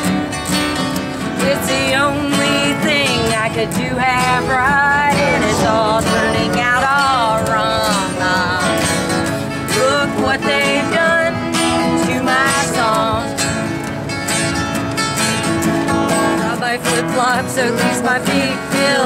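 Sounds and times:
acoustic guitar strumming: 0:00.0 - 0:19.0
person singing: 0:01.4 - 0:13.3.

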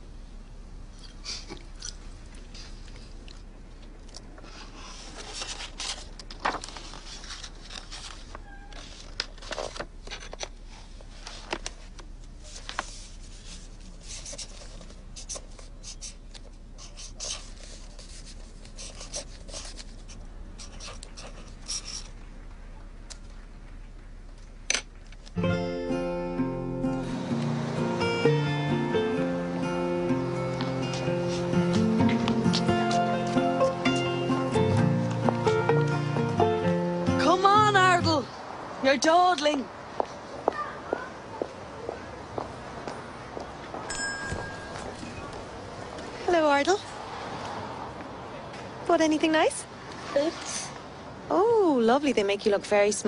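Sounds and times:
low steady hum: 0:00.0 - 0:38.6.

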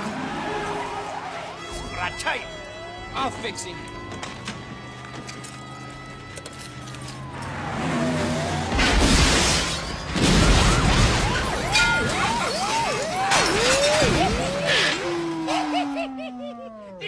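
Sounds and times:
police siren yelping: 0:00.0 - 0:09.1, 0:10.4 - 0:17.0
engine and tyre noise surges: 0:00.0 - 0:11.6.

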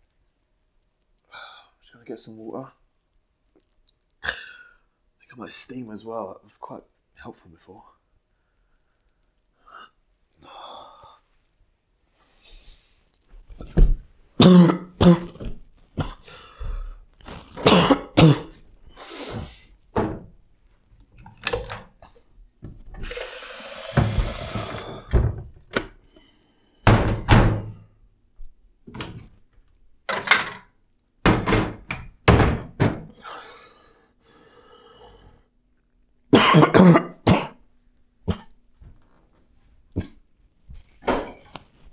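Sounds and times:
man coughing: 0:14.4 - 0:15.4, 0:17.6 - 0:18.6, 0:36.4 - 0:37.6.

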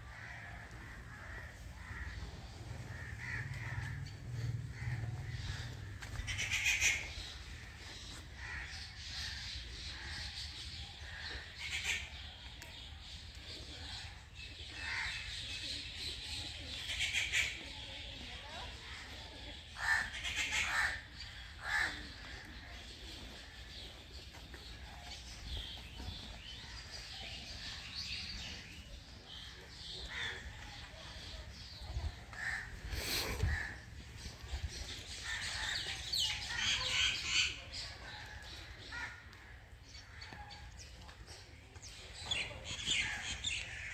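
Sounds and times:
crows cawing: 0:00.0 - 0:02.2, 0:02.9 - 0:07.2, 0:08.4 - 0:09.4, 0:14.8 - 0:15.2, 0:19.8 - 0:21.0, 0:21.6 - 0:22.4, 0:32.3 - 0:32.8, 0:33.4 - 0:33.8, 0:38.7 - 0:40.3
steady low rumble: 0:02.3 - 0:06.4.

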